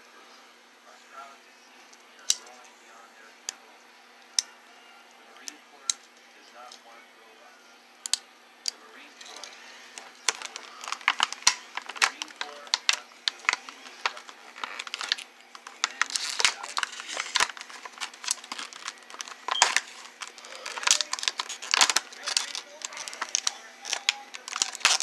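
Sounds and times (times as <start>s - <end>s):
plastic packaging crinkling: 9.2s - 25.0s.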